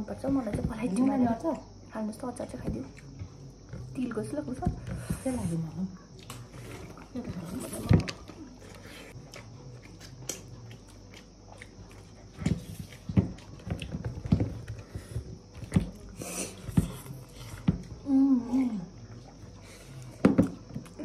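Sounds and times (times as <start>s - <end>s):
person chewing food: 6.1s - 18.0s.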